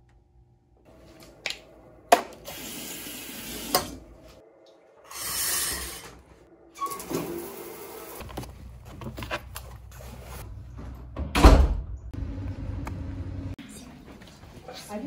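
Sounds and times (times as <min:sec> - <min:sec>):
shower water hissing: 0:02.4 - 0:04.1, 0:05.0 - 0:06.2, 0:07.2 - 0:08.2.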